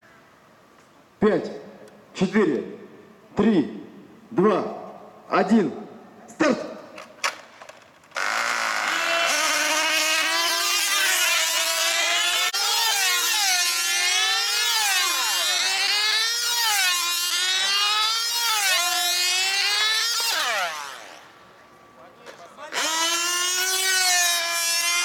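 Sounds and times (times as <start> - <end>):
model aircraft engines whining: 8.2 - 21.4.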